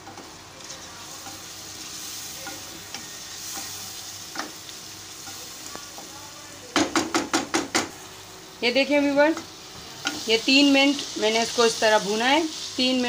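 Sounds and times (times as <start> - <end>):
spoon stirring and scraping pan: 0.0 - 6.2, 9.3 - 13.0
meat sizzling in oil: 0.0 - 13.0
spoon knocking against pan: 6.8 - 7.9.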